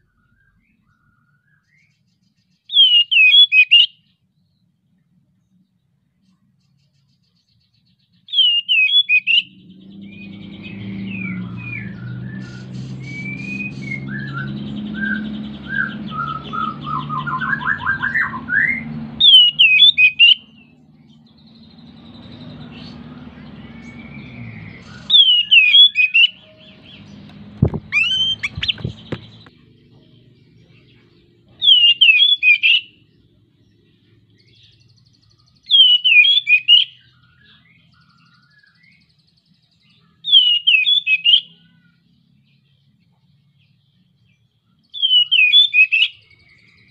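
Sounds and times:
magpie-robin singing: 0.0s - 4.7s, 6.2s - 46.9s
sharp knocks: 27.5s - 29.5s.

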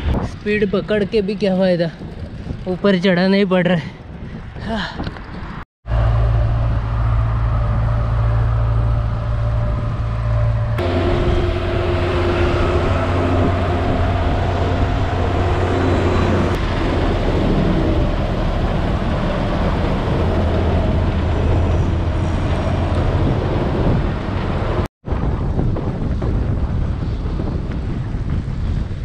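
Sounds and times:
road and wind noise: 0.0s - 29.0s
steady engine hum: 5.8s - 24.9s
heavy diesel trucks passing: 5.9s - 24.9s.

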